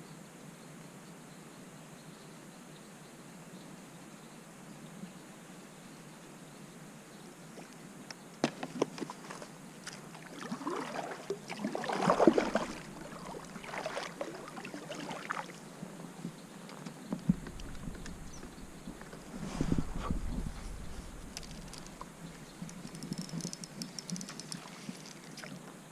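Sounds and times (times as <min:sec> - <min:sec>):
paddle splashing through water: 0:08.4 - 0:15.7, 0:24.4 - 0:25.5.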